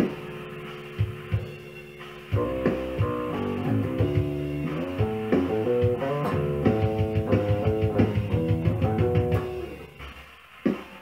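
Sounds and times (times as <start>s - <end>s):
electric bass plucked notes: 2.4s - 9.9s.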